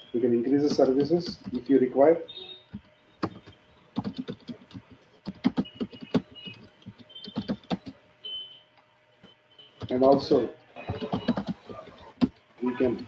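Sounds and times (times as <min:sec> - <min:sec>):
computer keyboard typing: 0:00.6 - 0:01.8, 0:02.7 - 0:08.0, 0:09.8 - 0:13.0.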